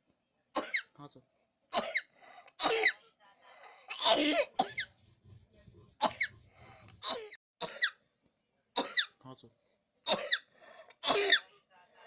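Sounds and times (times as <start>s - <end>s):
child coughing with whistle: 0.6s - 0.9s, 1.8s - 3.0s, 4.0s - 4.9s, 6.0s - 6.3s, 7.1s - 8.0s, 8.8s - 9.2s, 10.1s - 11.4s.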